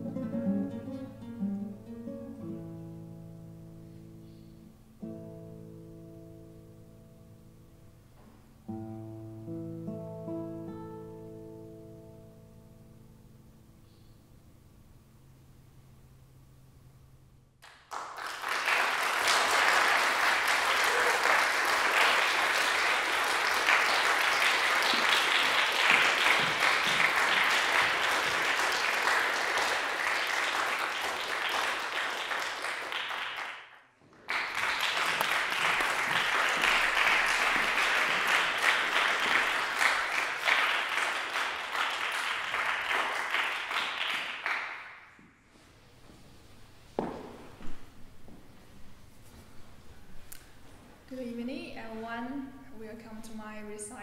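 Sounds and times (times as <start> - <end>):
audience applauding: 17.6 - 45.1.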